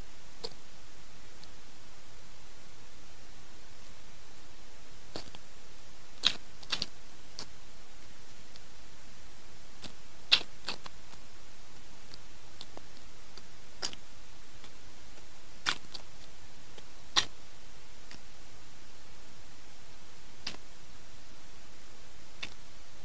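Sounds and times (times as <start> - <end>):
steady hiss: 0.0 - 23.0
person chewing: 5.1 - 5.4, 6.2 - 7.5, 9.8 - 10.9, 13.8 - 14.0, 15.6 - 17.3
wet mouth and finger clicks: 13.8 - 14.0.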